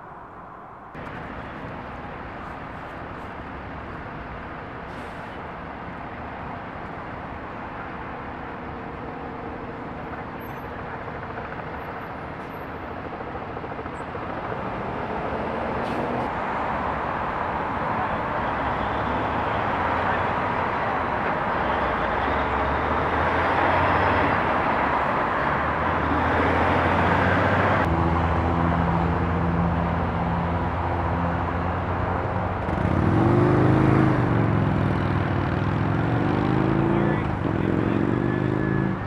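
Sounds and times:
road traffic hum: 0:00.0 - 0:39.0
vehicle approaching: 0:12.7 - 0:39.0.

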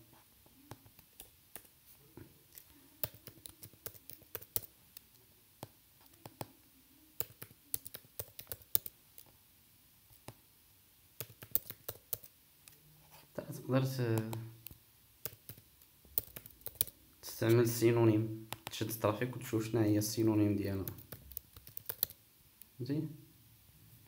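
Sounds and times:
typing on computer keyboard: 0:03.0 - 0:05.1, 0:07.2 - 0:09.0, 0:11.2 - 0:12.3, 0:14.2 - 0:17.0, 0:20.8 - 0:22.2.

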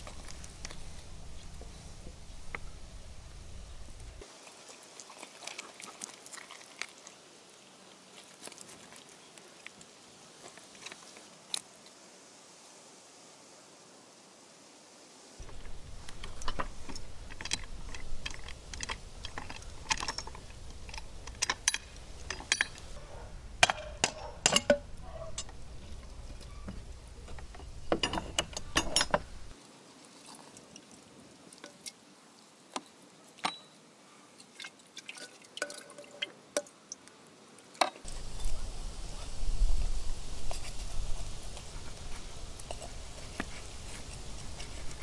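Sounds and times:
cookware clicks and clinks: 0:23.6 - 0:25.6.

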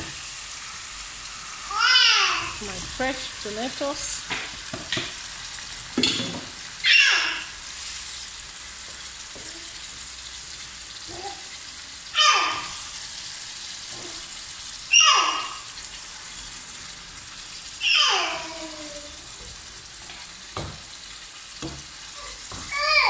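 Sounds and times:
vegetables sizzling in a frying pan: 0:00.0 - 0:23.0
loud downward sliding calls: 0:06.8 - 0:07.6, 0:12.1 - 0:13.0, 0:14.9 - 0:15.8, 0:17.8 - 0:18.6.

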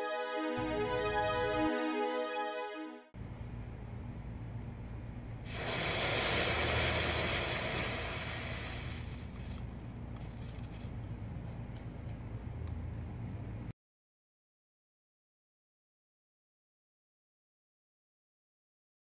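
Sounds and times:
chemical mixture burning with hiss: 0:05.4 - 0:10.9.

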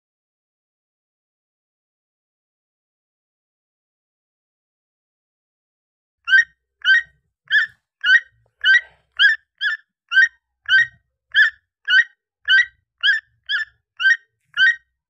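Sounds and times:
macaw squawking: 0:06.3 - 0:14.9.

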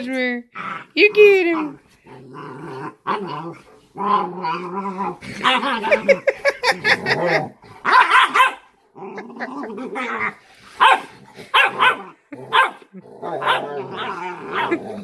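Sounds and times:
puppy growling yelping and barking: 0:01.7 - 0:06.1, 0:06.7 - 0:15.0.

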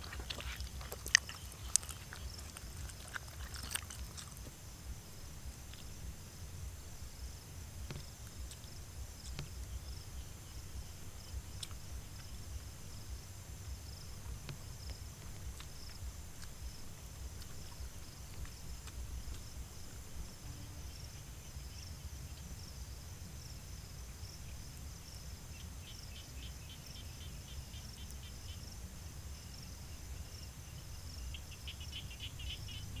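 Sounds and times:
insects chirring: 0:00.0 - 0:33.0
low rumble: 0:03.8 - 0:21.7.

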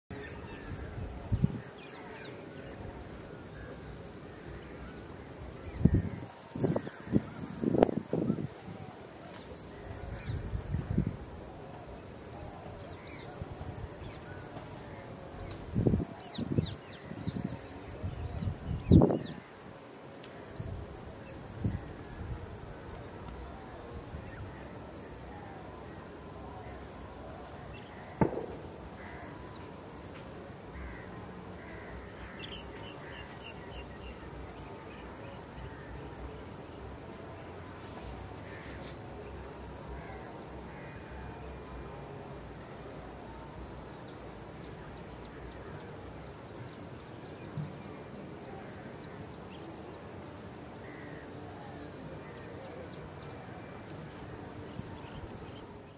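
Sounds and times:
high insect whine: 0:00.1 - 0:55.9
steady hiss: 0:00.2 - 0:55.9
sharp thump: 0:28.2 - 0:28.8.

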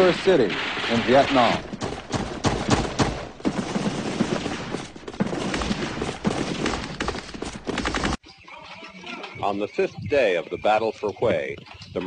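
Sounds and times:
rifle gunshots: 0:00.0 - 0:07.8.

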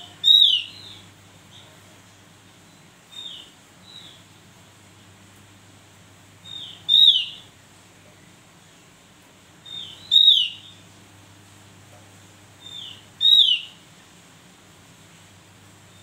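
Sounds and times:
bird whistled calls: 0:00.2 - 0:01.0, 0:06.5 - 0:07.4, 0:09.7 - 0:10.8, 0:12.6 - 0:13.8.

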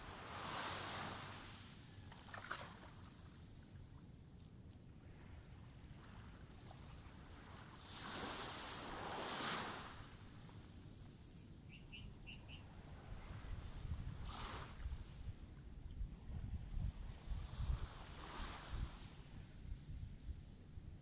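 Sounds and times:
small waves washing on sand: 0:00.0 - 0:04.2, 0:05.0 - 0:10.8, 0:12.6 - 0:15.4, 0:16.2 - 0:19.9
bird chirping: 0:11.7 - 0:12.6
wind rumble on microphone: 0:11.7 - 0:21.0.

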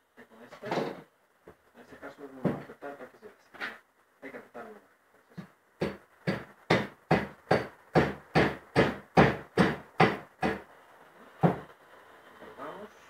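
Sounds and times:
hammer striking wood: 0:05.8 - 0:10.6, 0:11.4 - 0:11.6.

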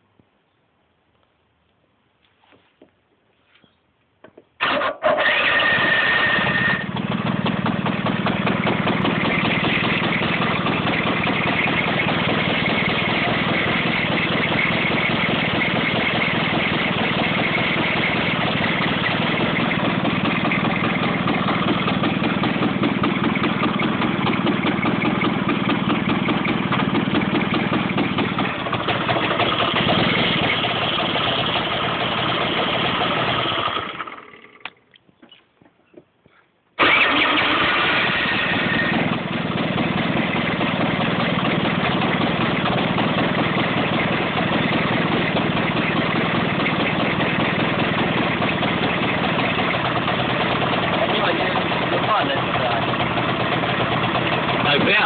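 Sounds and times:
scooter engine idling: 0:04.6 - 0:34.8, 0:36.8 - 0:55.0.

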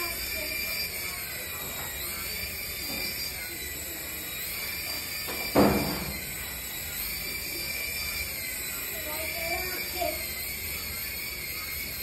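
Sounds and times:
toy helicopter rotor whining: 0:00.0 - 0:12.0.

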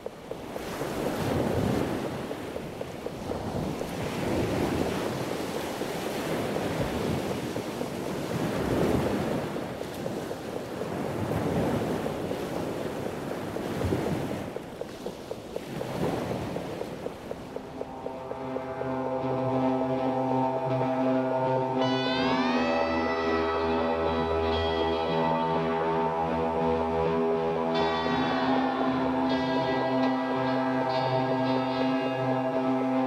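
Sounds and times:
light regular ticking: 0:00.0 - 0:06.0, 0:14.5 - 0:19.4
sea surf washing: 0:00.0 - 0:33.0
wind blowing: 0:00.0 - 0:33.0.

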